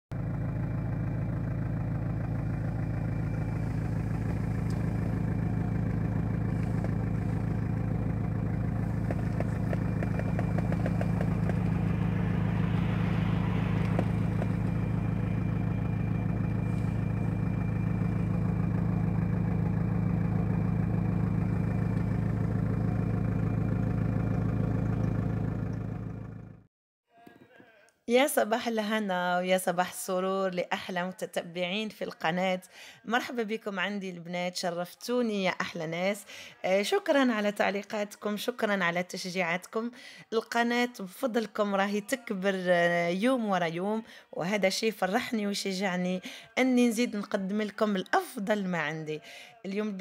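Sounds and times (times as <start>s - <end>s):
car engine idling: 0.1s - 26.7s
hissing noise: 8.7s - 18.5s.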